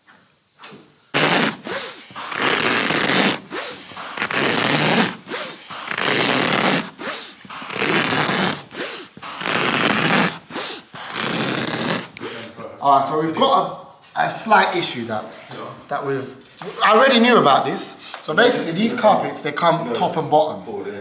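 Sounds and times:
knife slicing through carpet: 1.2 - 12.3.

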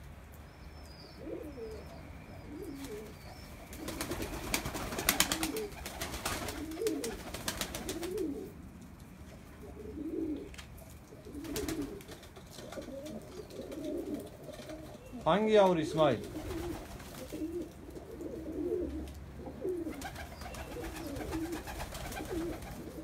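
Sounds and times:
pigeons cooing: 0.9 - 23.0.

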